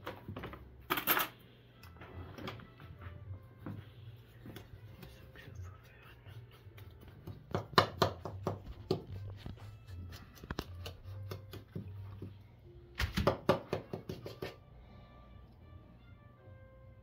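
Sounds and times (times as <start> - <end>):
utensil tapping plastic bowl: 13.1 - 14.6.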